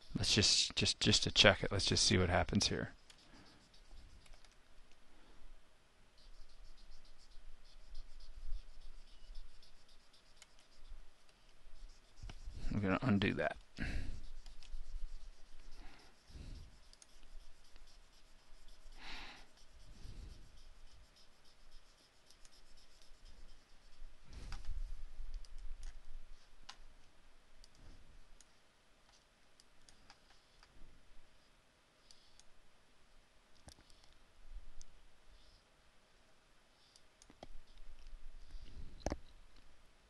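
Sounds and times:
computer mouse clicking: 3.0s - 5.0s, 14.4s - 14.8s, 16.8s - 17.3s, 25.3s - 26.0s, 33.6s - 34.2s.

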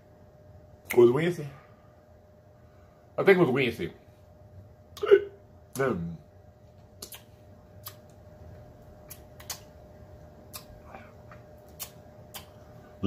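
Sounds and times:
faint steady hum: 0.0s - 13.0s
lip smacks and chewing clicks: 6.8s - 8.2s, 8.8s - 9.8s, 10.4s - 12.6s.

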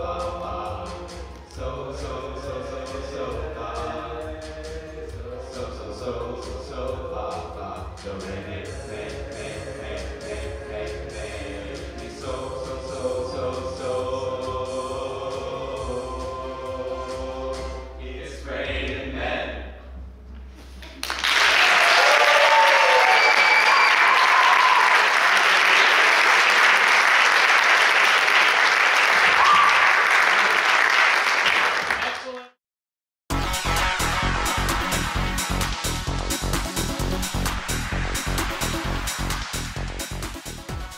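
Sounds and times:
male voices singing a cappella: 0.0s - 19.6s
audience applause: 21.0s - 32.5s
audience whoops: 21.1s - 26.5s, 29.2s - 30.7s.

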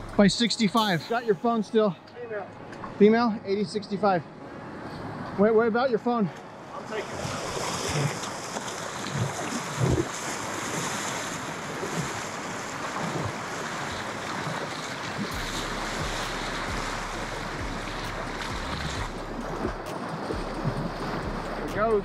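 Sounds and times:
surf washing and breaking: 6.4s - 22.0s.

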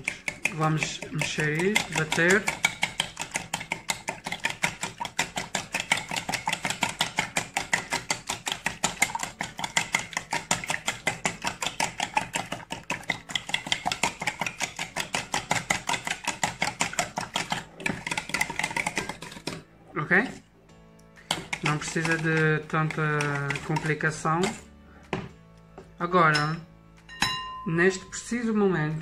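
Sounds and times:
whisk clicking against bowl: 0.0s - 19.6s, 21.2s - 24.6s.

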